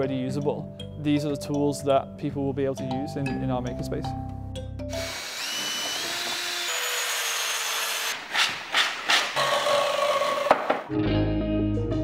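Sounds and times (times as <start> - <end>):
power tool motor whine: 4.9 - 8.2.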